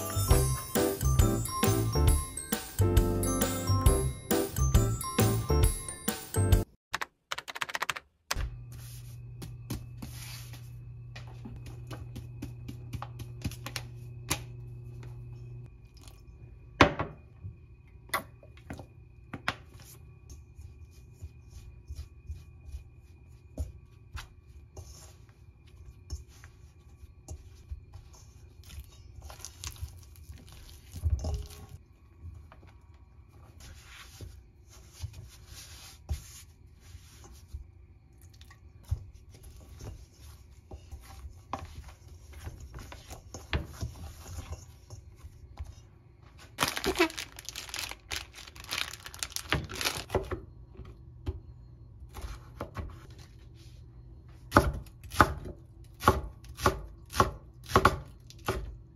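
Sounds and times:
paper flour bag rustling: 0:46.3 - 0:50.1.

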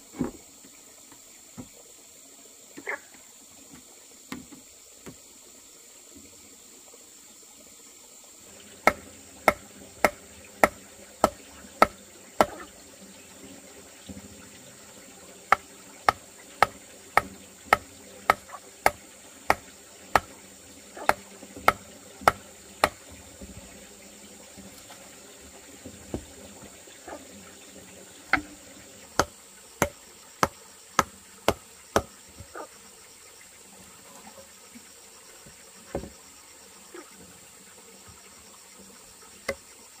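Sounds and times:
tool knocking sharply: 0:08.8 - 0:12.6, 0:21.1 - 0:23.0, 0:29.2 - 0:32.1.

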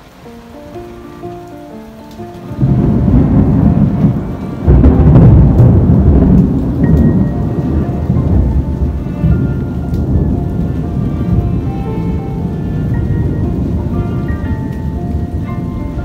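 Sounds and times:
rain: 0:00.0 - 0:16.0
distant thunder rumbling: 0:02.3 - 0:16.0.

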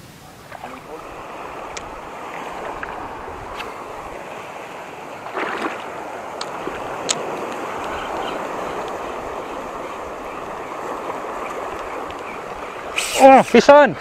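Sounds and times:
water splash: 0:00.0 - 0:04.4, 0:05.2 - 0:09.3
small waves washing over rocks: 0:00.4 - 0:14.0.

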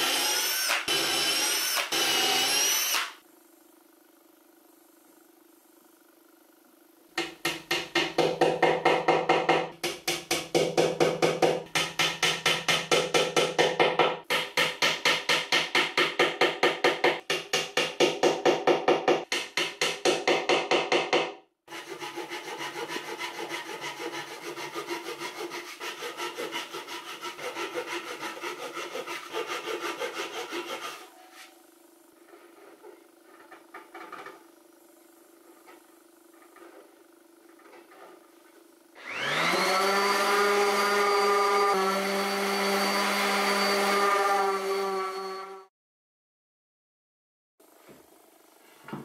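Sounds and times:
handsaw cutting wood: 0:00.0 - 0:03.2, 0:21.7 - 0:31.5, 0:39.0 - 0:45.7.

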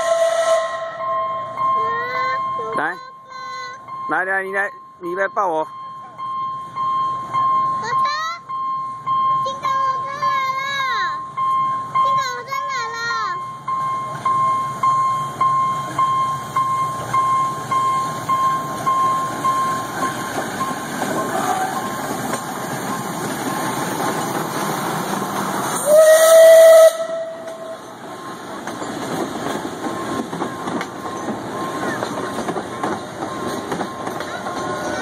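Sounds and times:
steam whistle blast: 0:00.0 - 0:01.2, 0:25.8 - 0:27.8
bystanders murmuring: 0:31.0 - 0:35.0.

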